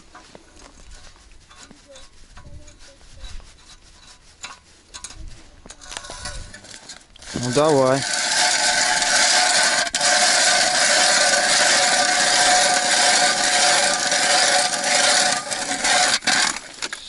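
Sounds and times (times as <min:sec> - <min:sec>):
ice auger grinding through ice: 0:05.9 - 0:17.0.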